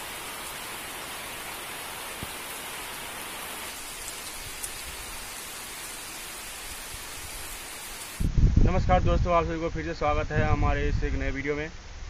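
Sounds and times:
heavy rain on a road: 0:00.0 - 0:08.3.

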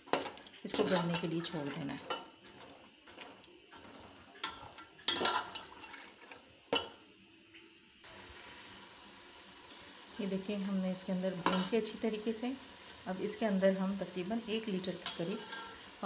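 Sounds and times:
spoon stirring in a wet pot: 0:00.0 - 0:07.0, 0:15.0 - 0:15.9
liquid sloshing: 0:00.9 - 0:06.5.

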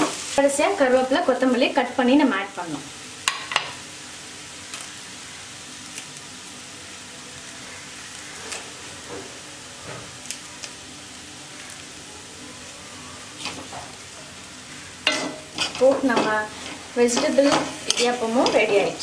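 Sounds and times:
spoon scraping steel pan: 0:15.1 - 0:18.8.

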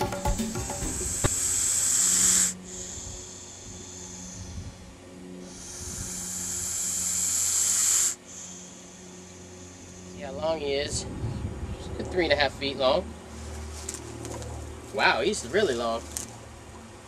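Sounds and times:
snake hissing: 0:00.6 - 0:10.8.

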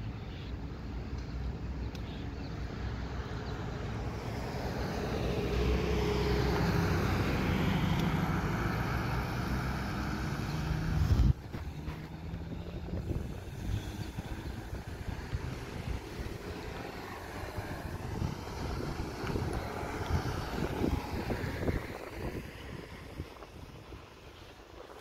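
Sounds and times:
faint road traffic: 0:00.0 - 0:25.0
pickup truck driving by: 0:04.1 - 0:23.3.

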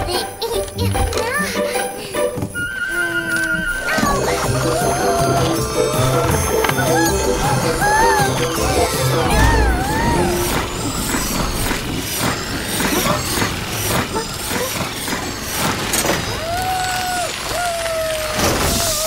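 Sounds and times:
high-pitched sliding tones: 0:02.6 - 0:15.8.

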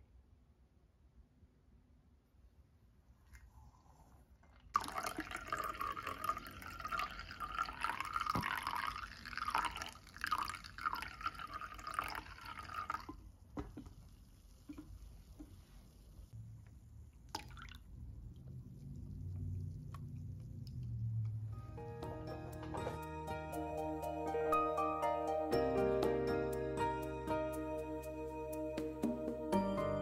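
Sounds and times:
faint drips: 0:04.4 - 0:15.8, 0:17.1 - 0:21.5
coffee pouring into a mug: 0:04.6 - 0:13.9, 0:17.3 - 0:18.0.

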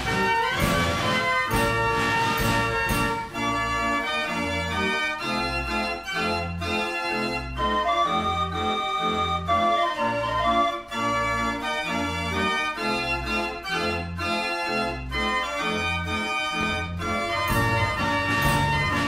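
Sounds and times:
organ-like keyboard tune: 0:00.0 - 0:19.0
repeating bass line: 0:17.0 - 0:19.0.

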